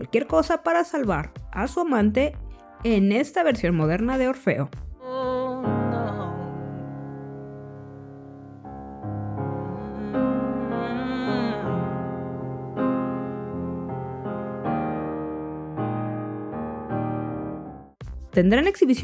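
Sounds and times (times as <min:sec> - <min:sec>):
slow piano chords: 0:05.0 - 0:18.0.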